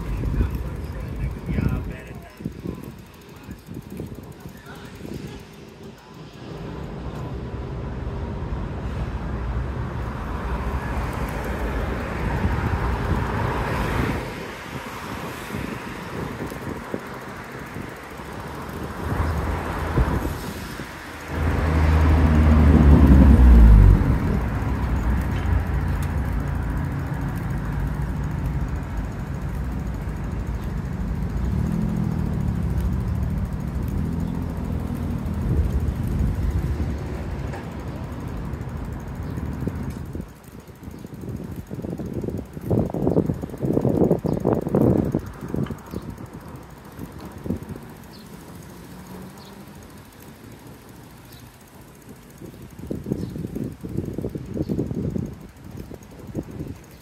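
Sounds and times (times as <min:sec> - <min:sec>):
passing cars rumble: 0:00.0 - 0:57.0
vehicle engine passing close: 0:18.6 - 0:39.4.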